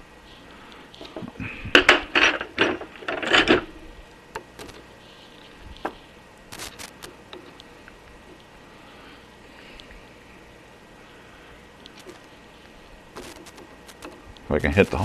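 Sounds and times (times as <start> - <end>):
screws and screwdriver clattering on metal: 1.7 - 3.7.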